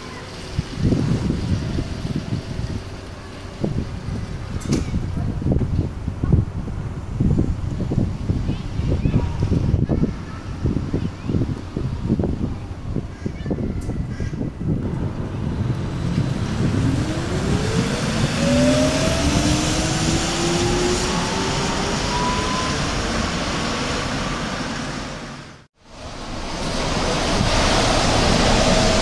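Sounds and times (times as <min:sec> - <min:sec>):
road and wind noise: 0:00.0 - 0:29.0
electric bus drive whine: 0:14.6 - 0:29.0.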